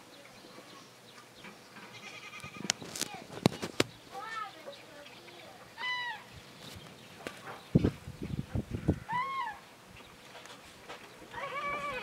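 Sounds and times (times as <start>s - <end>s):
cranes calling: 5.2s - 7.6s, 8.7s - 9.8s.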